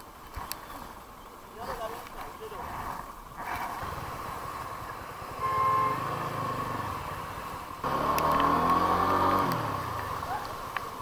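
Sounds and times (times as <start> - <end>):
vehicle engines running: 1.8 - 11.0
vehicle passing close: 3.4 - 10.8
car horn: 5.4 - 6.4.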